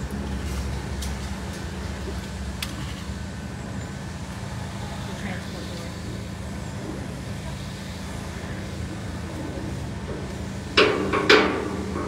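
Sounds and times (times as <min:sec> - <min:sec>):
low mechanical hum: 0:00.0 - 0:12.0
loud metal clangs: 0:10.8 - 0:12.0.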